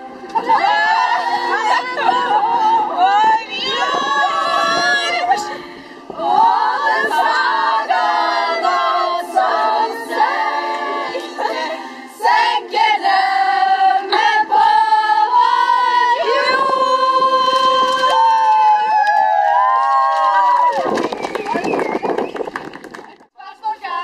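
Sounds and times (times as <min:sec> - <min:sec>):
women singing unaccompanied: 0:00.3 - 0:18.6.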